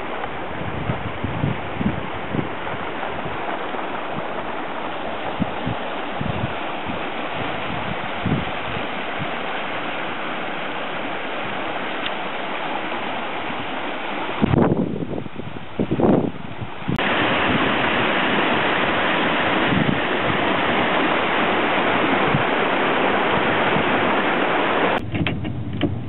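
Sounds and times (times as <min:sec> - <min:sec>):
floodwater rushing and churning: 0:00.0 - 0:26.0
low rumble: 0:25.0 - 0:26.0
low thumps: 0:25.0 - 0:26.0.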